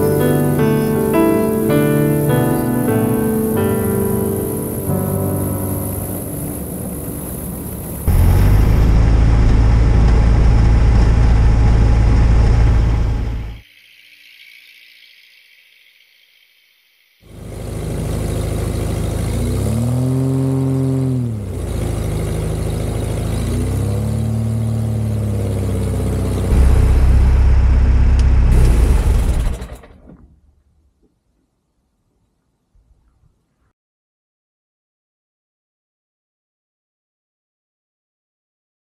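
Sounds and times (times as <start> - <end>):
light aircraft engine revving: 0.1 - 13.6, 17.3 - 30.0.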